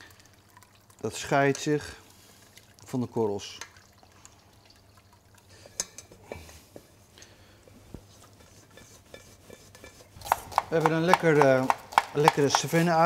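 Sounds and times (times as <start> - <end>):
spatula scraping a steel pan: 8.3 - 10.2.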